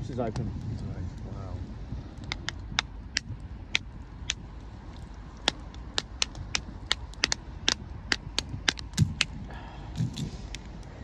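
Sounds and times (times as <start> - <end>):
lobster shells cracking: 2.2 - 10.8.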